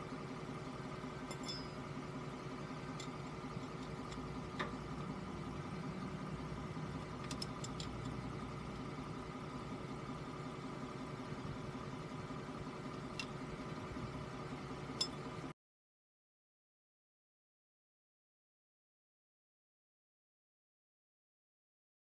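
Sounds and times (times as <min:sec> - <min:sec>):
truck engine idling: 0:00.0 - 0:15.5.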